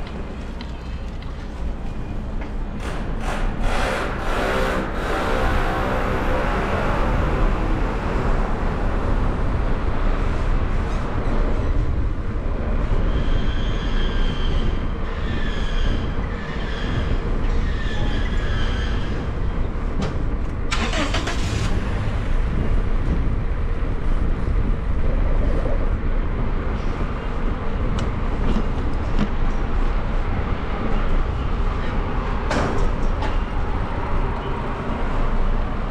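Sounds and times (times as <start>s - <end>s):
street traffic rumble: 0.0s - 35.9s
wind on microphone: 21.7s - 35.9s.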